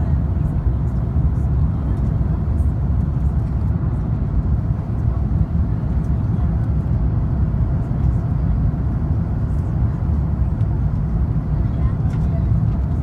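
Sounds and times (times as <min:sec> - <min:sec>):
airplane cabin rumble: 0:00.0 - 0:13.0.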